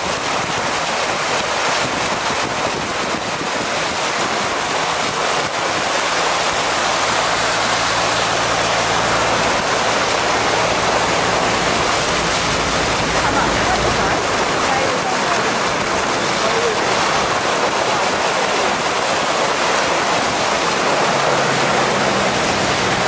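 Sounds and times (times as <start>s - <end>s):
water splashing from vehicle: 0.0s - 23.0s
engine low hum: 5.9s - 17.2s, 20.4s - 23.0s.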